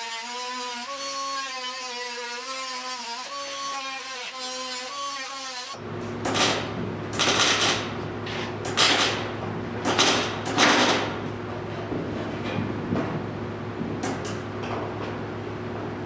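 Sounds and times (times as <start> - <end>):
arc welder crackling: 0.0 - 11.4
steady electrical hum: 5.8 - 16.0.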